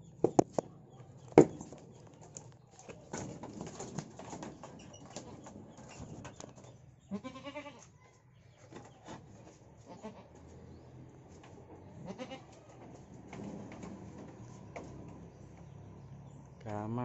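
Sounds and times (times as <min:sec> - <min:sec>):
goat bleating: 0:07.1 - 0:08.0, 0:09.8 - 0:10.3, 0:12.0 - 0:12.7.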